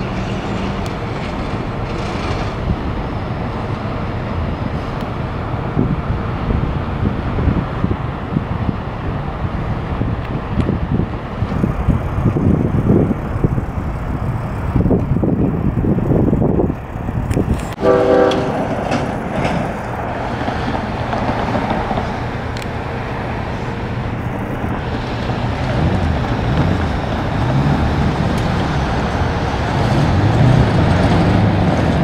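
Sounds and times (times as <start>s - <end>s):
diesel locomotive rumbling: 0.0s - 32.0s
locomotive horn blast: 17.8s - 18.8s.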